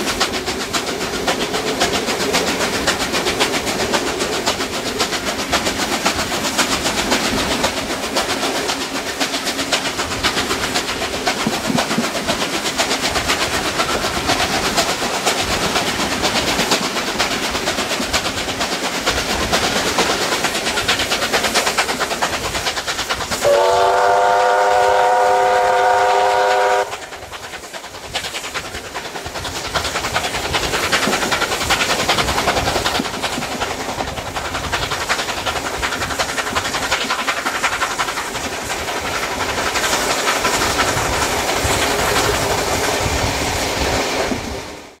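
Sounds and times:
train wheels clickety-clack: 0.0 - 45.0
steam whistle blast: 23.4 - 27.0.

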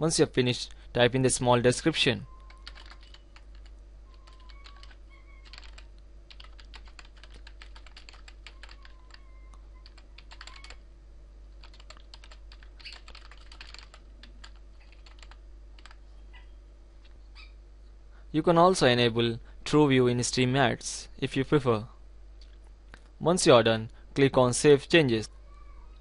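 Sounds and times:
keyboard typing: 2.4 - 10.8, 11.6 - 16.0.

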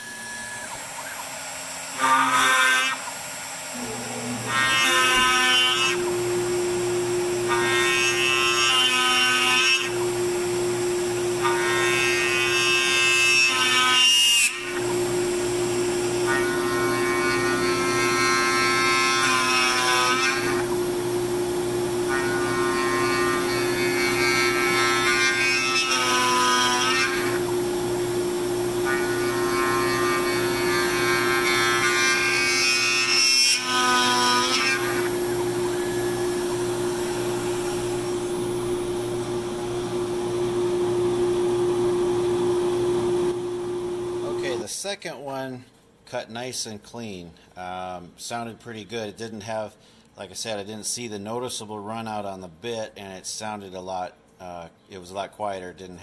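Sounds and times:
drill bit cutting into wood: 0.0 - 40.0
router spindle hum: 0.0 - 44.6.

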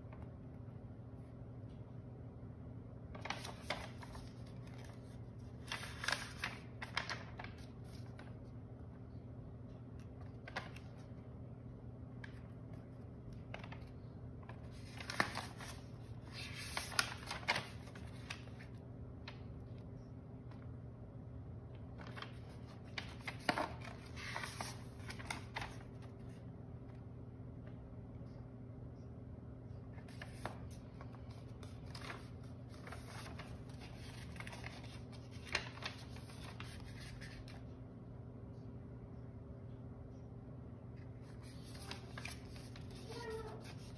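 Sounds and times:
low room hum: 0.0 - 43.9
paper rustling and crackling: 3.1 - 8.6, 9.6 - 11.2, 12.2 - 20.7, 21.8 - 26.4, 30.0 - 37.7, 41.1 - 43.9.

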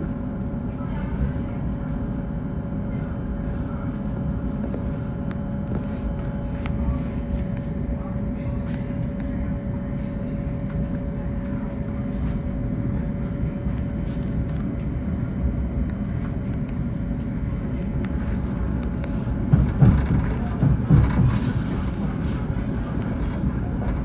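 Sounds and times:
faint constant hum: 0.0 - 24.0
train wheels rumbling on rail: 16.0 - 24.0.

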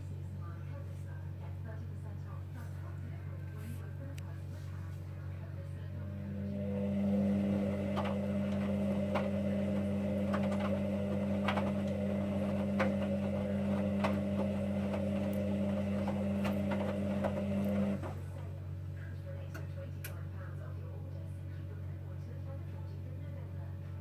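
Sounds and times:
washing machine drum motor humming: 5.5 - 20.3.

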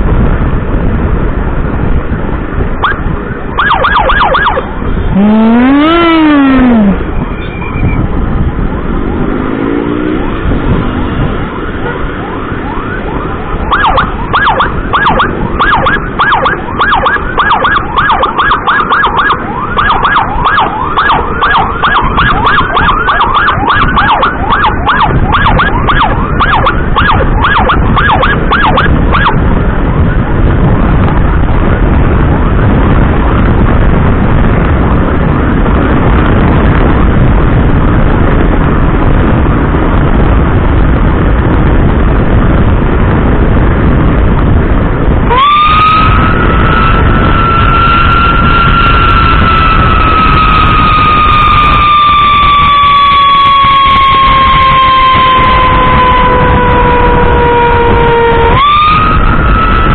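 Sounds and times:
wind noise: 0.0 - 59.9
emergency siren yelping: 2.8 - 7.2, 11.3 - 29.4, 45.2 - 59.9
motorcycle engine: 2.8 - 30.4, 45.6 - 59.9.

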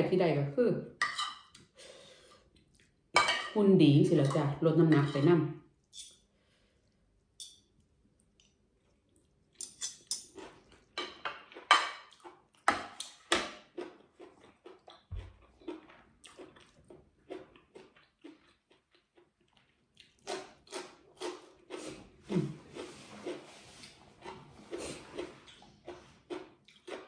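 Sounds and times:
chewing: 2.4 - 3.0, 6.8 - 27.0.

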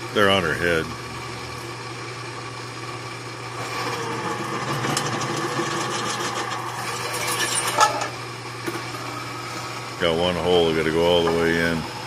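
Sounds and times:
drill press motor hum: 0.0 - 12.0
drill bit cutting metal: 3.6 - 8.1.

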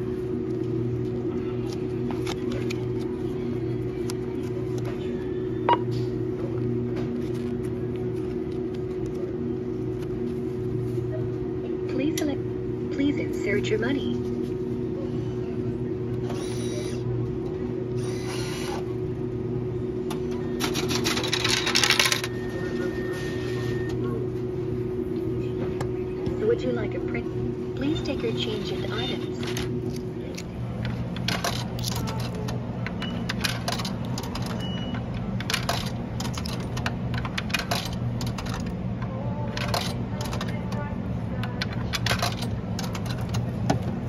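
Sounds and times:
steady machine hum: 0.0 - 44.0
bill acceptor motor whirring: 15.5 - 44.0
coins clinking in vending machine: 20.4 - 23.2, 27.8 - 38.8, 39.4 - 43.6.

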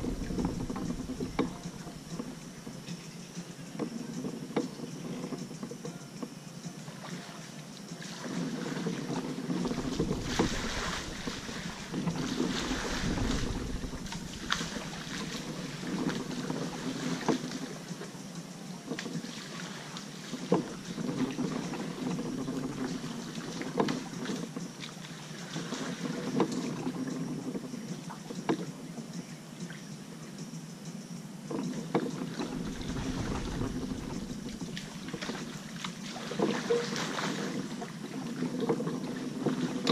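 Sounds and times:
wind rumbling on microphone: 0.0 - 2.9, 8.3 - 17.9, 32.2 - 39.9
paddle splashing water: 0.0 - 29.8, 31.5 - 39.9.

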